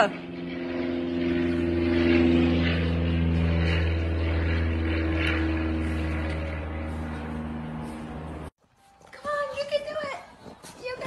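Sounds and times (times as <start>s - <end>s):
low mechanical drone: 0.0s - 8.5s.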